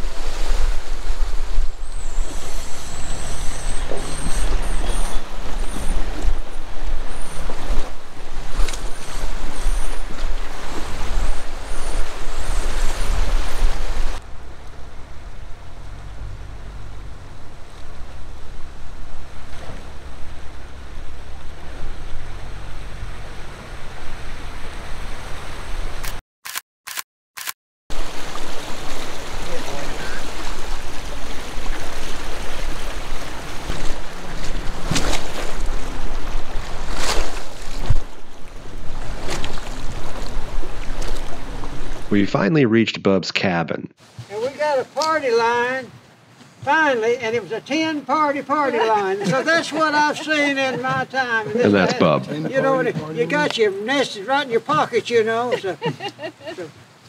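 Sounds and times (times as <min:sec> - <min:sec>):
wind on microphone: 0:00.0 - 0:26.0, 0:28.0 - 0:42.2
car engine running: 0:14.2 - 0:25.7
water splashing from tyres: 0:27.9 - 0:42.1.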